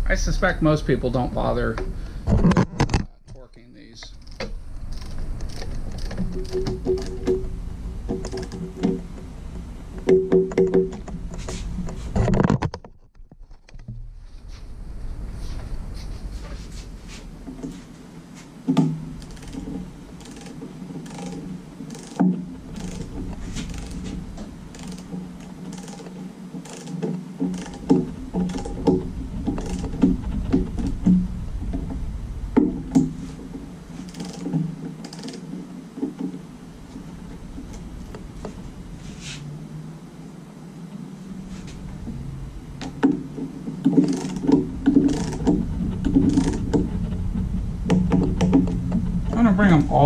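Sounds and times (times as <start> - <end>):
steady low hum: 0.0 - 50.0
torque wrench clicking: 4.0 - 7.4, 19.2 - 30.1, 34.0 - 35.4, 43.8 - 46.8.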